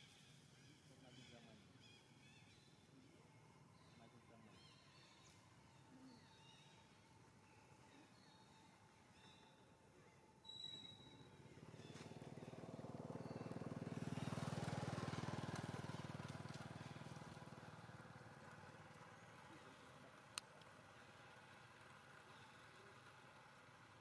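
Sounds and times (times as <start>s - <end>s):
distant vehicle engine passing: 11.3s - 24.0s.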